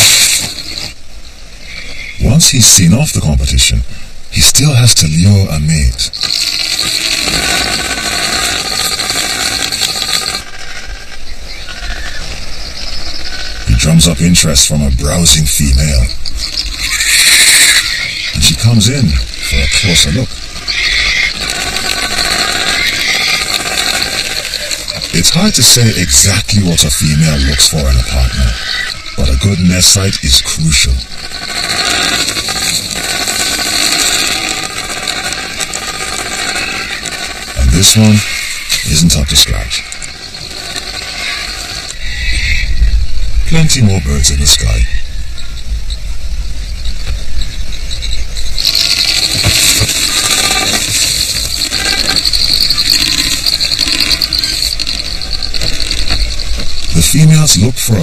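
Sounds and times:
bird buzzy drumming rattle: 5.7 - 14.3, 15.1 - 42.9, 48.0 - 57.9.

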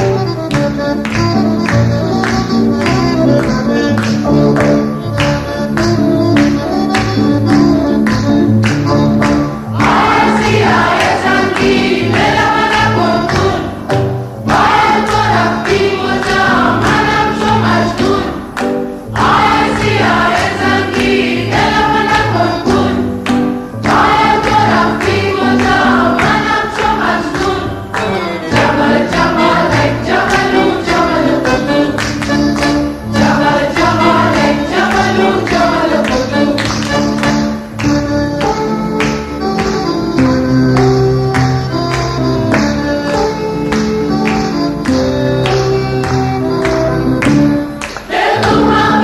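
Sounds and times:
chorus of voices chanting: 9.7 - 13.8, 14.5 - 23.1, 23.9 - 32.0, 33.1 - 36.2, 48.0 - 49.0.

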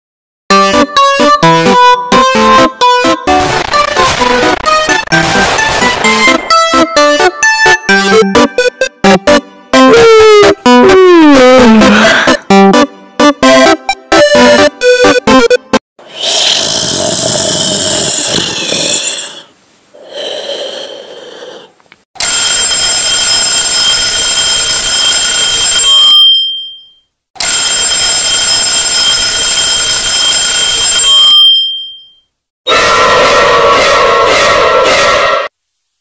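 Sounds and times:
noisy sound effects: 3.2 - 15.8
alarm clock ringing: 22.2 - 32.2.

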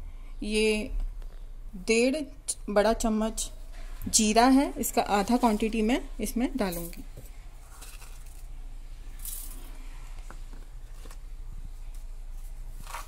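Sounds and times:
seeds falling into metal jar: 7.7 - 9.8.

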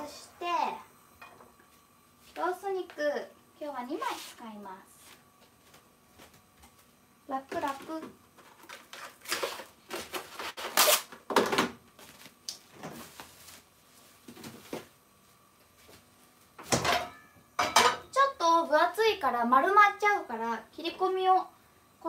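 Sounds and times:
cling wrap rustling and scraping: 8.9 - 11.1.

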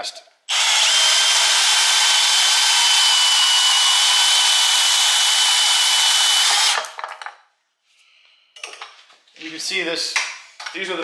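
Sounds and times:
band saw cutting metal: 0.5 - 6.8.

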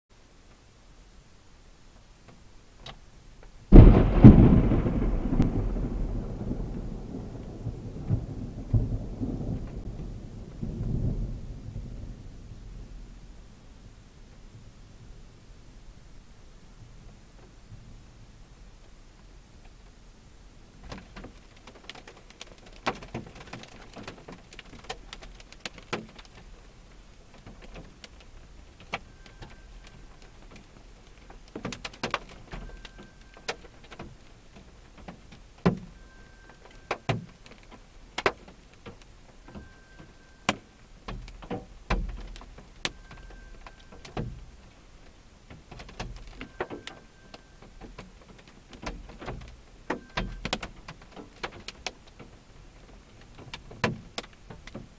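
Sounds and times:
rain tapping on car roof: 2.0 - 12.1, 20.7 - 54.9
short faint beep: 29.0 - 30.2, 35.9 - 37.0, 39.5 - 40.8, 42.9 - 44.0, 46.4 - 47.7.

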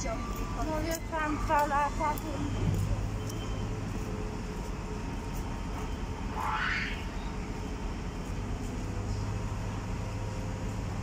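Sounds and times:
diesel engines rumbling: 0.0 - 11.0
brief rising whine: 6.1 - 7.6.

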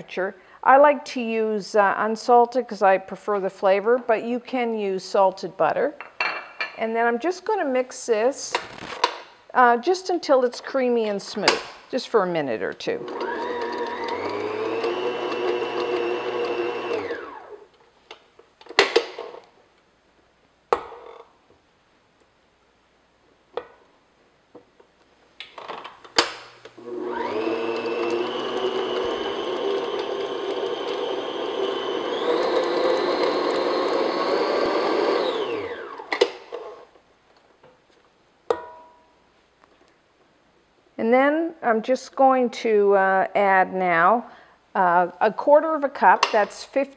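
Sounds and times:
stand mixer motor whining: 13.0 - 17.6, 26.8 - 36.1.

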